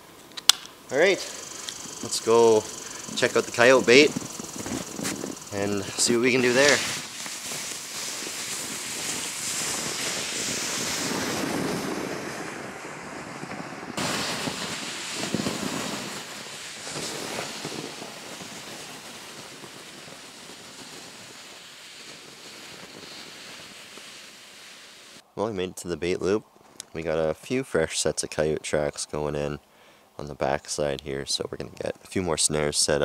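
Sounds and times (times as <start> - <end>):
footsteps in snow: 1.4 - 12.4
plastic sled scraping over snow: 3.1 - 25.2.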